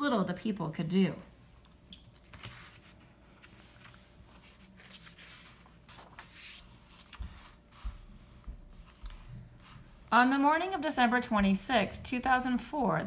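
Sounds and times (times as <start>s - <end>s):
book pages turning: 2.1s - 9.9s.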